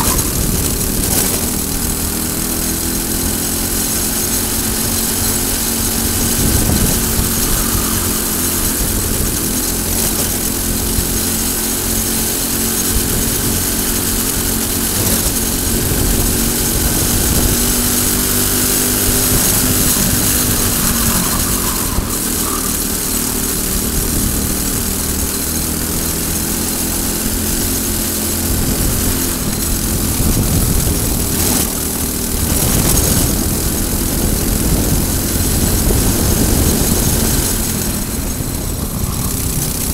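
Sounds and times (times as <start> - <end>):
kart engine running at speed: 0.0 - 39.9
wind and road noise hiss: 0.0 - 39.9.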